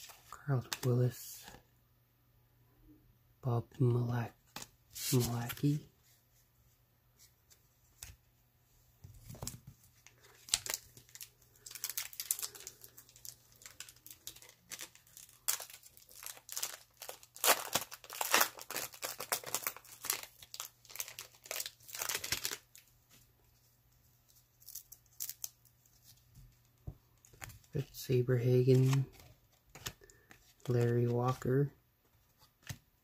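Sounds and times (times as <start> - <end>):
card pack wrapper crinkling and tearing: 10.1 - 22.8, 24.6 - 25.7, 28.6 - 31.5.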